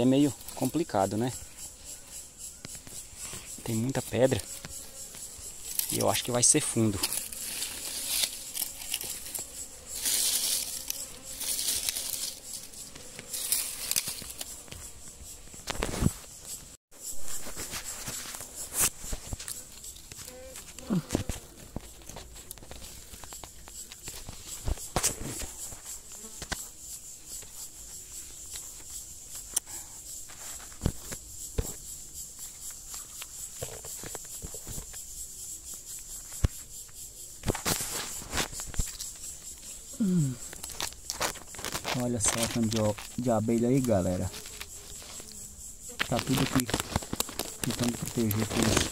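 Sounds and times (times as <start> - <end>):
insects chirring: 0.0 - 48.9
bees buzzing: 1.3 - 16.4.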